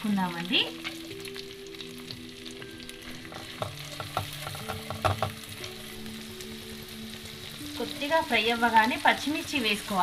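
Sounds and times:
onions sizzling in a pan: 0.0 - 10.0
spatula knocking against pan: 3.3 - 5.5.

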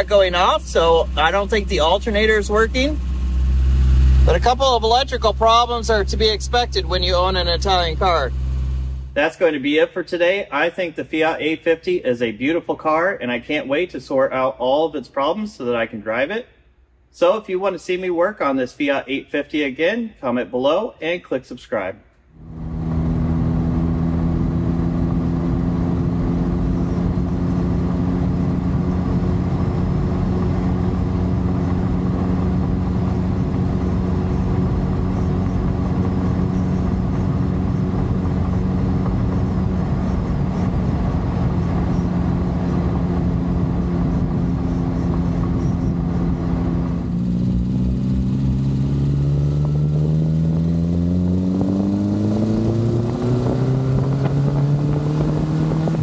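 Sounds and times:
car engine running: 0.0 - 9.2, 22.4 - 56.0.

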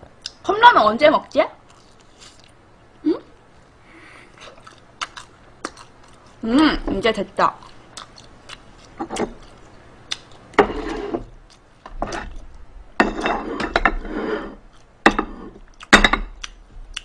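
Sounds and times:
plates and tableware clinking: 10.6 - 11.3, 13.0 - 16.3.

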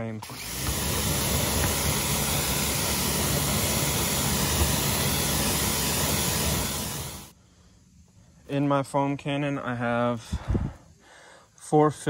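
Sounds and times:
pressure washer water spray: 0.0 - 7.3
low motor hum: 0.2 - 7.3.

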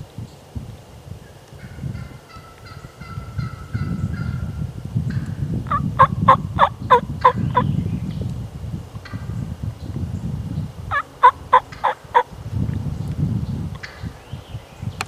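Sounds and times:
turkey hen yelping: 1.6 - 4.5, 5.7 - 7.6, 10.9 - 12.3.

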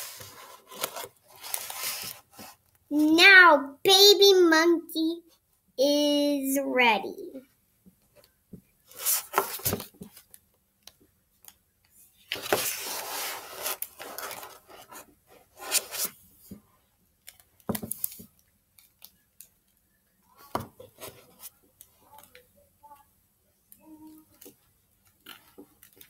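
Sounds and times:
book pages turning: 0.0 - 2.7, 8.8 - 10.4, 12.3 - 16.2.

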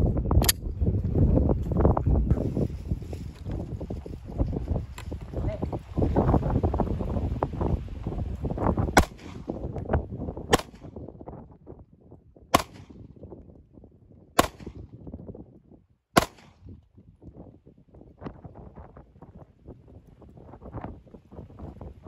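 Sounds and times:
pistol shots: 9.0 - 9.6, 10.5 - 11.0, 12.5 - 13.0, 14.4 - 14.8, 16.2 - 16.7.

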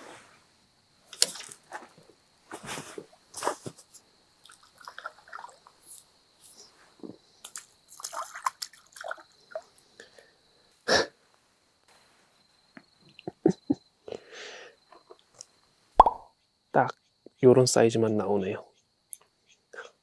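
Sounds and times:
wet splashes and squelches: 1.2 - 1.7, 4.4 - 6.0, 7.4 - 9.8.

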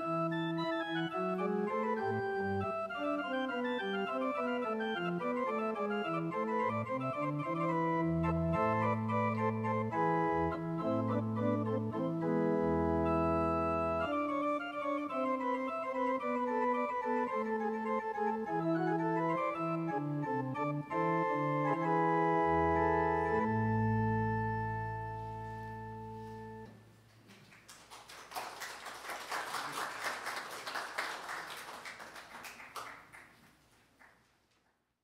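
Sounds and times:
electronic organ playing: 0.0 - 26.8
congregation applauding: 27.2 - 34.4.

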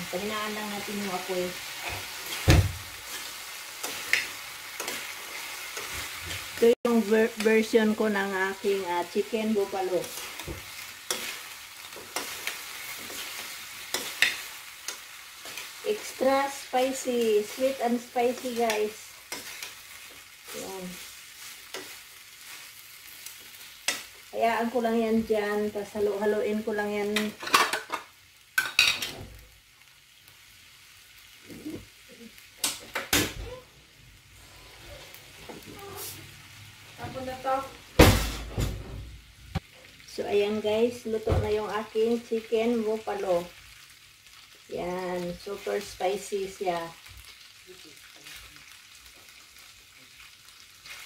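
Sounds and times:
sauce sizzling in a pan: 0.0 - 38.5, 39.1 - 51.0
metal spoon scraping a pan: 9.5 - 24.2.

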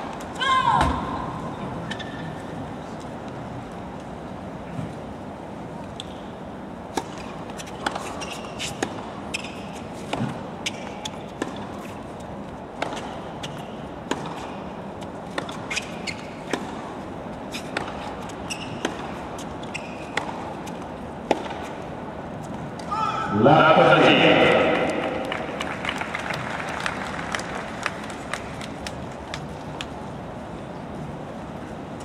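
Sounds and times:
stadium background hum: 0.0 - 32.0
racket striking tennis ball: 6.9 - 12.0, 12.7 - 21.9
tennis ball bouncing: 6.9 - 22.9
shoe squeaks: 7.6 - 10.0, 15.5 - 16.6, 17.5 - 20.2.

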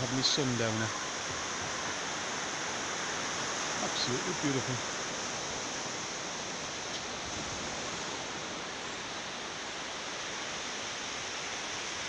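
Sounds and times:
small waves breaking on beach: 0.0 - 12.0.

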